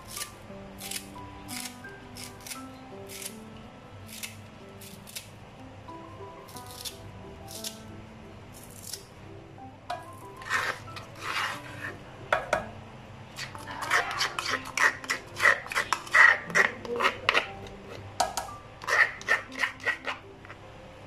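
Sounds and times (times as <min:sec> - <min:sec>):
spoon scraping stone mortar: 0:10.2 - 0:12.0, 0:13.4 - 0:18.0, 0:18.8 - 0:20.6.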